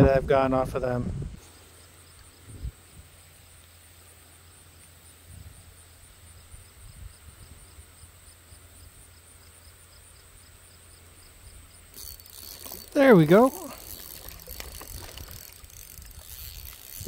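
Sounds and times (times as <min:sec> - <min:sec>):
wind rumble on microphone: 0:00.0 - 0:01.4
faint high ticking: 0:11.8 - 0:17.0.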